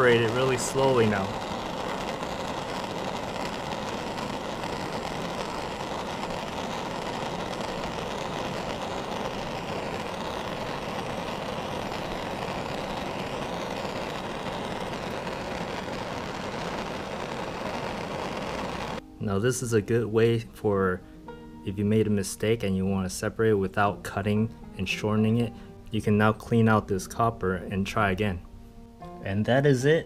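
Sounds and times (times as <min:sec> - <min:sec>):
propane torch hissing: 0:00.0 - 0:19.0.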